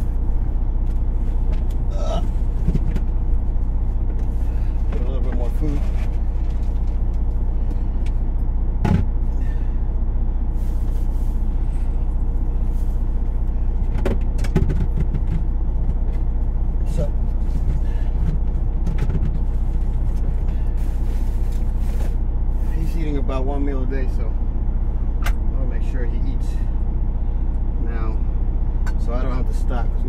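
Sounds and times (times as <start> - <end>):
diesel truck engine idling: 0.0 - 30.0
objects knocking and clattering: 13.9 - 15.5.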